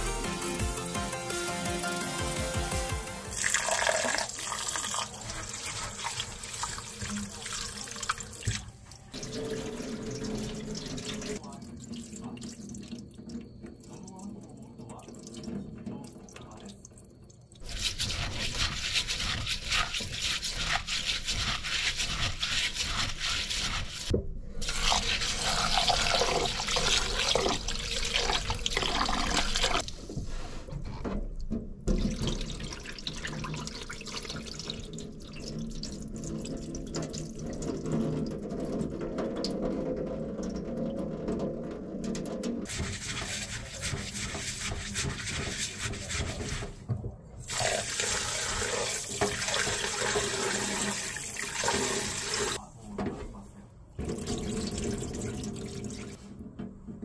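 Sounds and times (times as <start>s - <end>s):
running tap water: 3.3s - 29.9s, 31.8s - 46.8s, 47.5s - 52.6s, 54.0s - 56.3s
water sloshing and pouring: 3.3s - 52.6s, 53.9s - 56.6s
wet rice grains rubbed: 3.7s - 7.6s, 17.6s - 26.4s, 42.7s - 46.8s.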